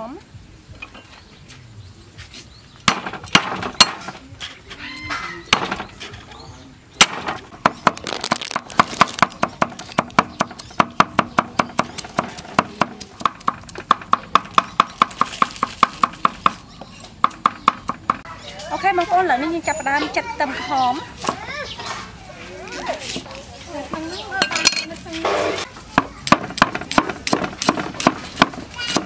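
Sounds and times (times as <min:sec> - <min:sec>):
cleaver chopping on wooden block: 0:07.0 - 0:16.6, 0:26.0 - 0:29.0.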